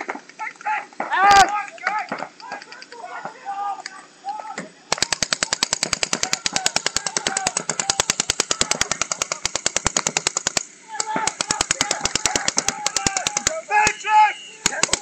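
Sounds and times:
paintball markers firing rapidly: 4.9s - 14.0s, 14.6s - 15.0s.

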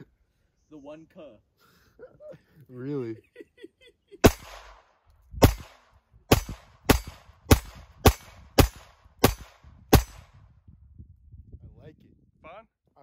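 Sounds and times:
pistol shots: 4.2s - 10.4s.

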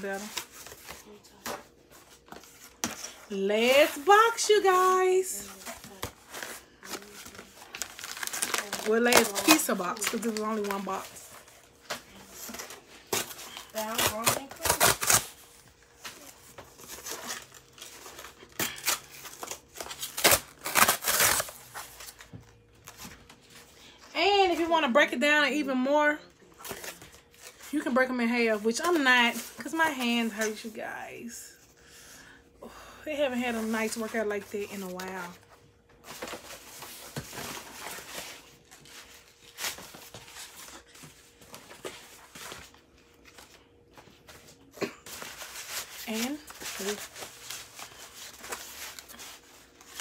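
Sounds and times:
cardboard tearing: 5.5s - 11.0s, 12.4s - 15.4s, 16.0s - 22.2s.

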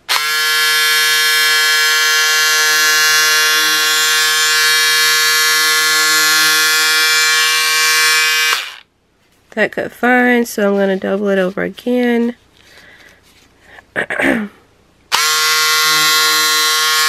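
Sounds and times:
electric scissors buzzing: 0.0s - 8.8s, 15.1s - 17.0s.

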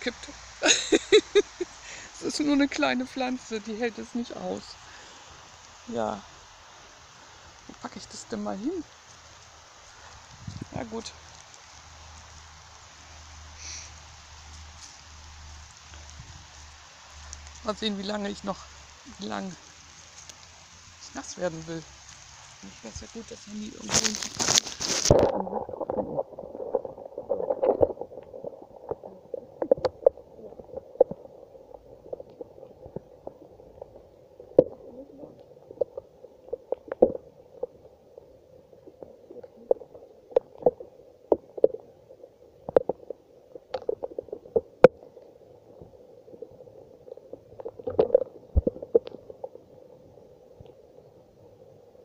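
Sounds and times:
raindrops ticking on phone: 0.0s - 25.2s
dull steady hiss: 0.0s - 52.0s.

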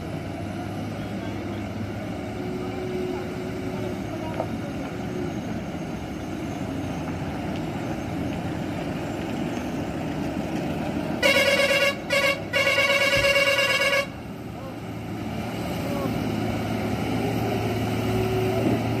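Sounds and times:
vehicle engines and tyres on gravel: 0.0s - 19.0s
vehicle horn honking: 11.2s - 14.2s.

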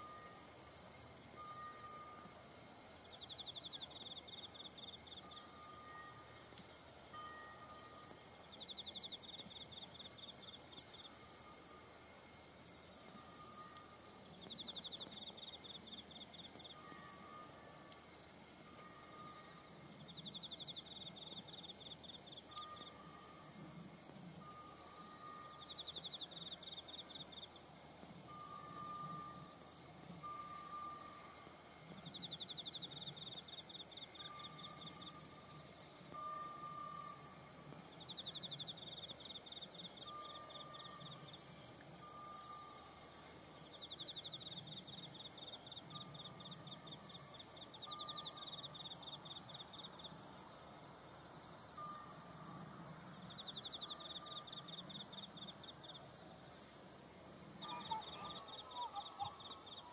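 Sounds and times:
low insect chirps: 0.0s - 59.9s.

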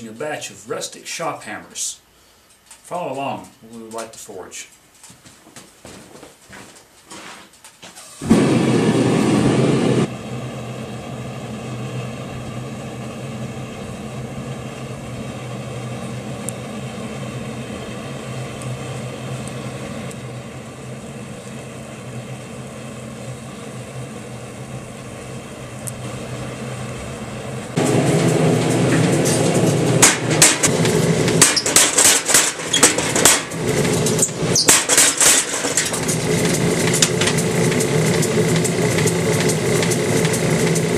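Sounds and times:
shop machinery humming: 8.0s - 40.9s
sharp knocks: 28.6s - 34.0s, 34.6s - 36.1s.

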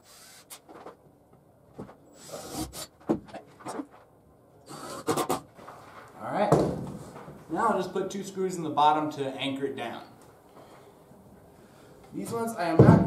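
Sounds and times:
wooden boards scraping: 1.8s - 4.1s.

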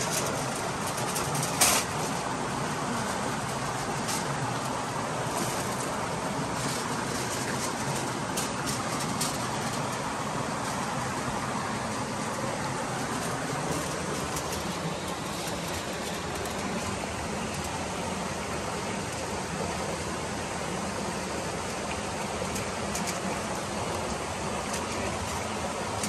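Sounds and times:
aluminium foil crinkling: 0.0s - 17.9s.

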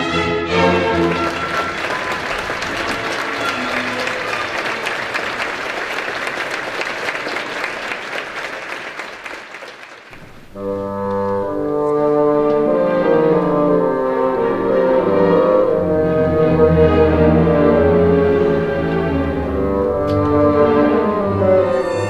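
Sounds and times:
orchestra playing sustained chords: 0.0s - 5.9s, 10.4s - 22.0s
audience applauding: 0.6s - 10.3s.

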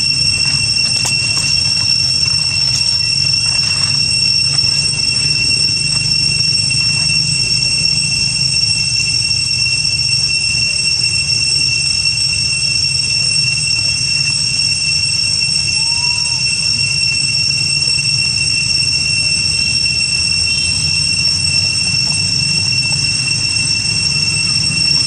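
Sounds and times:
high-pitched insect drone: 0.0s - 25.0s.

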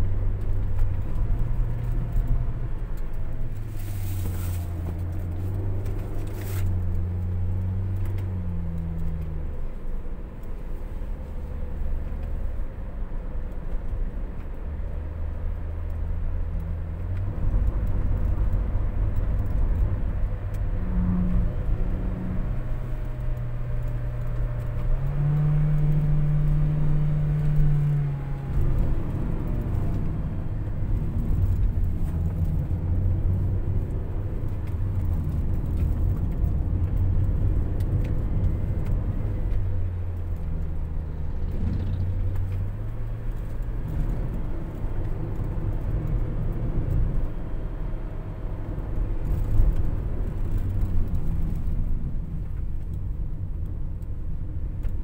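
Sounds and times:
minivan engine hum: 0.0s - 55.0s
road rumble: 0.0s - 55.0s.

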